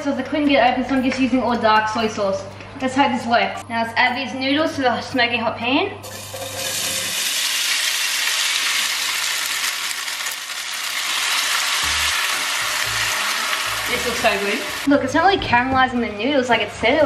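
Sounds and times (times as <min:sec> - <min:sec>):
noodles sizzling in frying pan: 0:06.0 - 0:14.9
sauce pouring into pan: 0:06.0 - 0:14.9.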